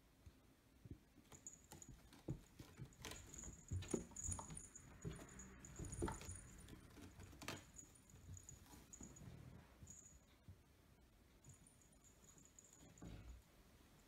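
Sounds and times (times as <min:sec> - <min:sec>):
cats scuffling with soft thumps: 0:00.8 - 0:10.6.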